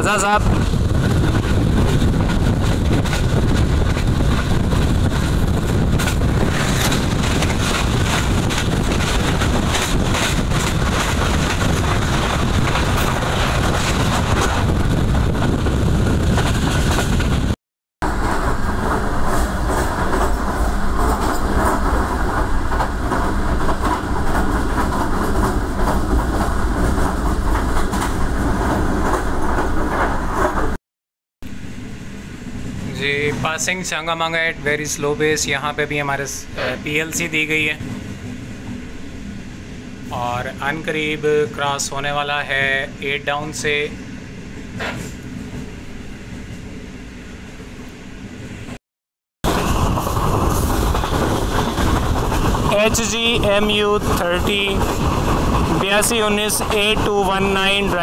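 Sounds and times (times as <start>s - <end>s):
rushing air: 0.0s - 30.8s, 49.4s - 58.0s
train wheels rumbling on rail: 0.0s - 30.8s, 31.4s - 48.8s, 49.4s - 58.0s.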